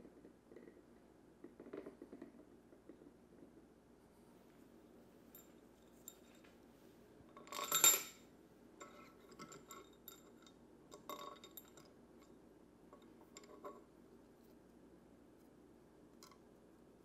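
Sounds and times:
metal socket clinking on metal: 7.5 - 8.2.

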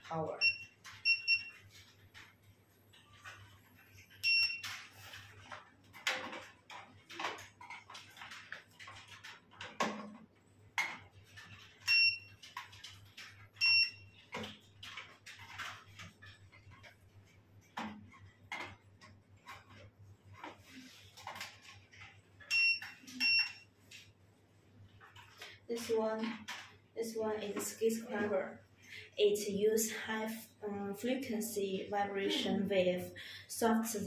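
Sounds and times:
handpieces clicking and clattering: 1.7 - 13.5.

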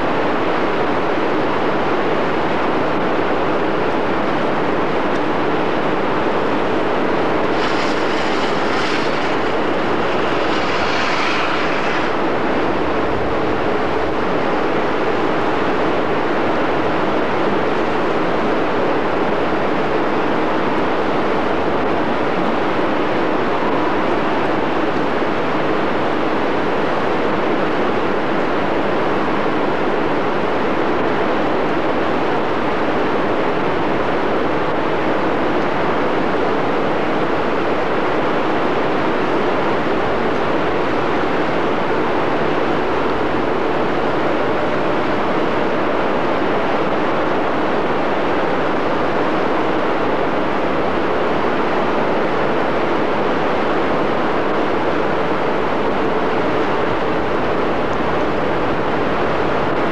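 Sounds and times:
rushing roar of rapids: 5.7 - 14.8.

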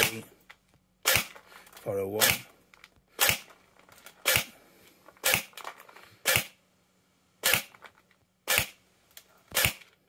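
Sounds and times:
airsoft rifle shots: 1.0 - 1.4, 2.2 - 2.5, 3.2 - 3.5, 4.2 - 4.5, 5.2 - 5.6, 6.2 - 6.6, 7.4 - 7.7, 8.4 - 8.8, 9.5 - 9.9.

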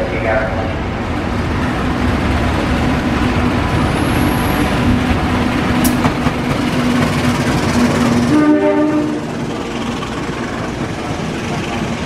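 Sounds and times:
heavy train rumble: 0.0 - 12.0
locomotive engine drone: 0.0 - 12.0.

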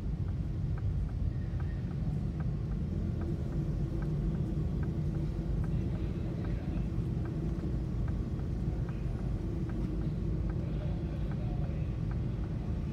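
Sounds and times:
faint repeating tick: 0.0 - 12.9
low engine rumble: 0.0 - 12.9.

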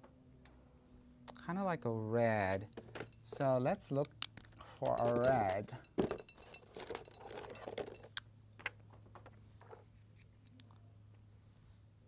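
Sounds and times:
paint tubes clicking and knocking: 2.7 - 10.8.

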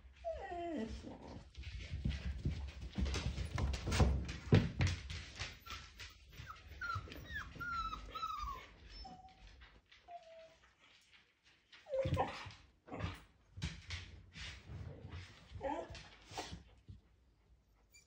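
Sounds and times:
puppies whimpering and yipping: 5.4 - 9.5
puppy yelp: 5.5 - 9.5.

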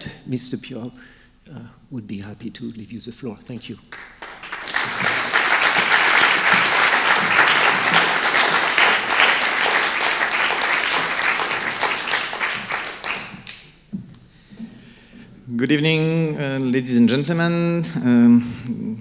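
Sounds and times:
audience applauding: 3.9 - 13.7.

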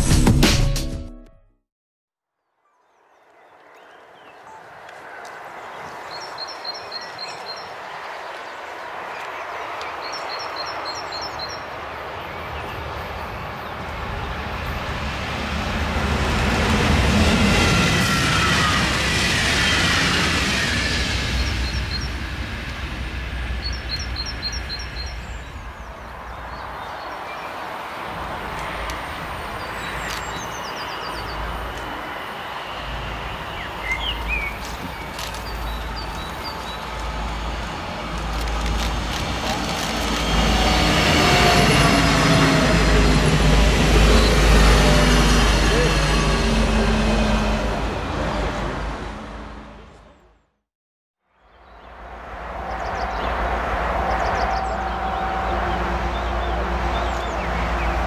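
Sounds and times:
birdsong: 2.6 - 14.8, 21.0 - 22.4, 23.5 - 37.1, 52.6 - 58.0
diesel train engine rumble: 28.1 - 50.2.

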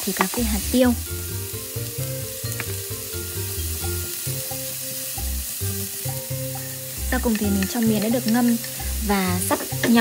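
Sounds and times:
background music: 0.0 - 10.0
filling sizzling in a pan: 0.0 - 10.0.

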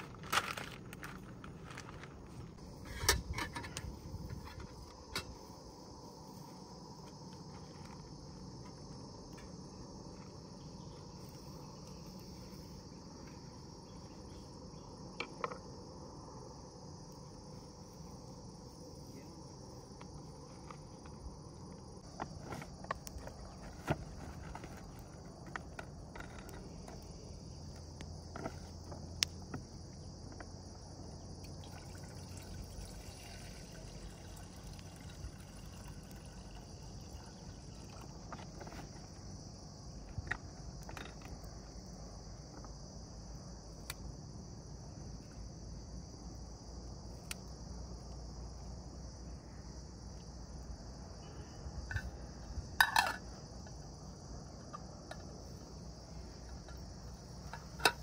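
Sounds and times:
crickets chirring: 0.0 - 58.0
small clicks and knocks: 56.4 - 58.0.

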